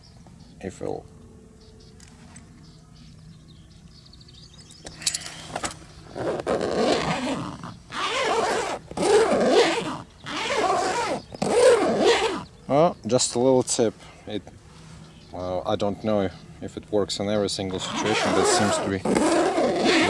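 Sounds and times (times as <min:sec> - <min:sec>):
tent zipper rasping: 0:05.2 - 0:12.5, 0:17.8 - 0:20.0.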